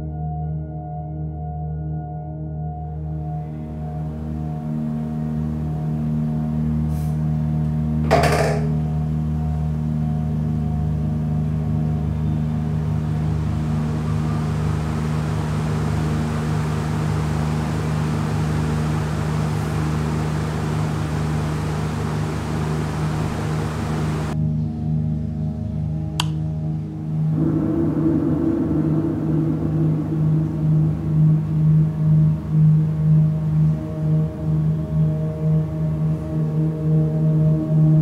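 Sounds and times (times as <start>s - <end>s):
droning ambient music: 0.0s - 38.0s
ceiling fan whooshing: 12.4s - 24.4s, 27.1s - 35.0s
sharp click: 26.2s - 26.4s.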